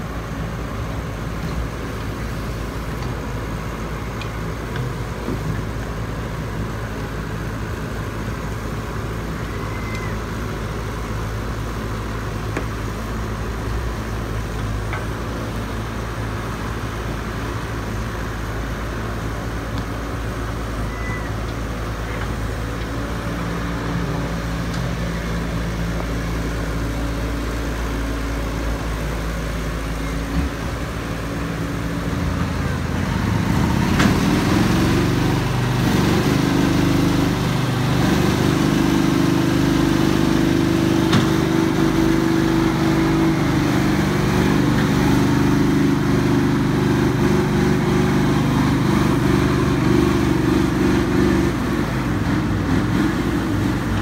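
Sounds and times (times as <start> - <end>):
excavator diesel engine working: 0.0 - 54.0.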